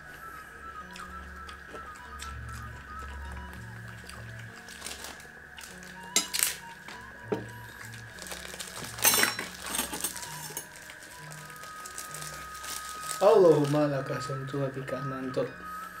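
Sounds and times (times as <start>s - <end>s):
soft background music: 0.0s - 16.0s
cutlery clinking on plates: 6.2s - 6.6s, 9.0s - 10.6s.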